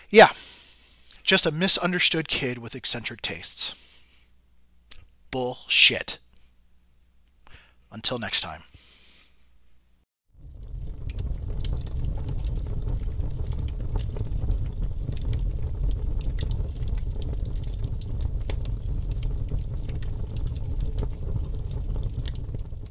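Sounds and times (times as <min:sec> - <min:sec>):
fire crackling and rumbling: 0:10.3 - 0:22.9.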